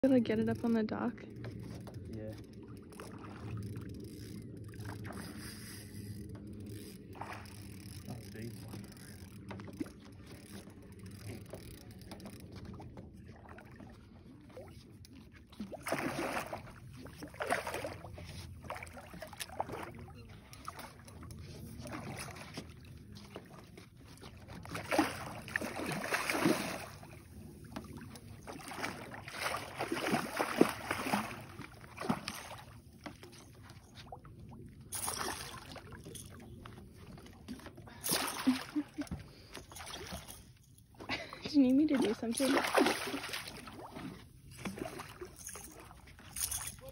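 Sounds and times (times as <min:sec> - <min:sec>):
fish splashing and thrashing in water: 0:09.3 - 0:40.7, 0:41.8 - 0:46.9.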